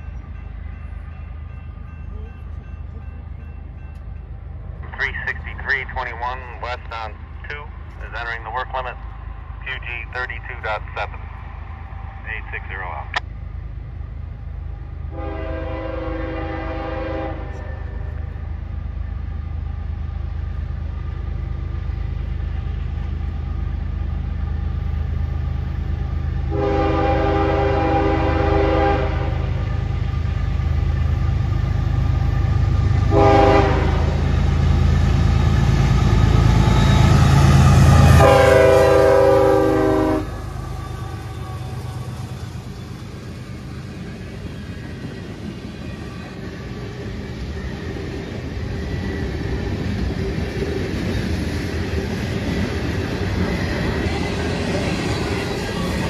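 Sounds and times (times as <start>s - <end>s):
diesel locomotive rumble: 0.0s - 56.0s
locomotive horn blasts: 15.1s - 18.1s, 26.5s - 29.6s, 33.1s - 34.2s, 38.0s - 41.8s.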